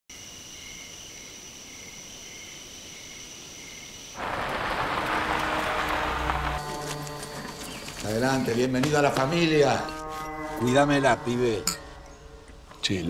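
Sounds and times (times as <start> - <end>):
crickets chirring: 0.1 - 13.0
car driving on dirt road: 4.2 - 9.5.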